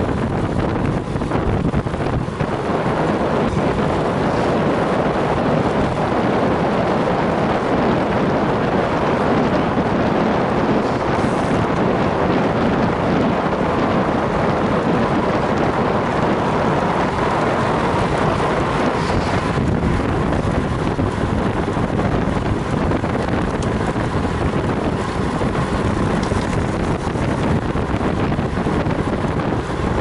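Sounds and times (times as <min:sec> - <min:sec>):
wind rushing over microphone: 0:00.0 - 0:30.0.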